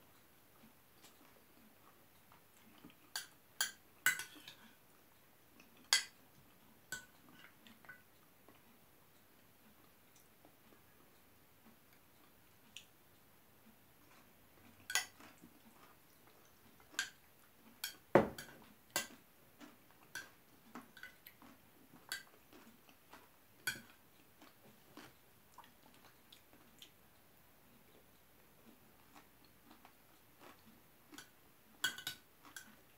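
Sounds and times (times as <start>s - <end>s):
soft chewing: 0.0s - 32.9s
spoon clinking against a bowl: 3.1s - 4.6s, 31.2s - 32.7s.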